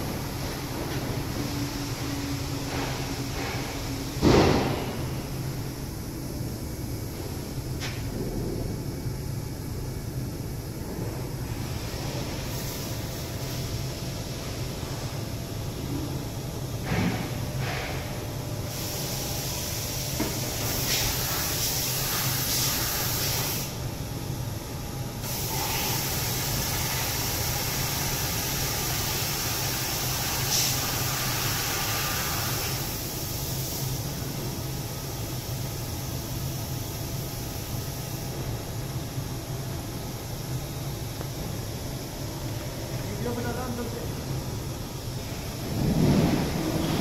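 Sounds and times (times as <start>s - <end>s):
machining centre humming: 0.0s - 47.0s
loud hiss: 11.5s - 15.0s, 16.8s - 23.8s, 25.2s - 34.4s.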